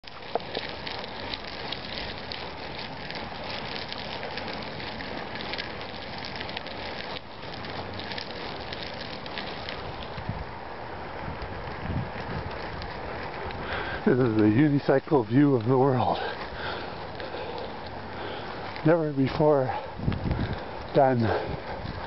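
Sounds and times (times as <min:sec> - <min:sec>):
tyre rolling over gritty asphalt: 0:00.0 - 0:22.0.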